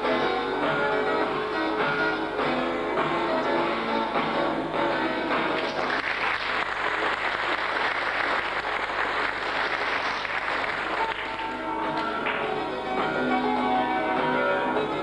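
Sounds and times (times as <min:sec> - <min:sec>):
guitar backing music: 0:00.0 - 0:05.9, 0:10.9 - 0:15.0
audience applauding: 0:05.5 - 0:12.8.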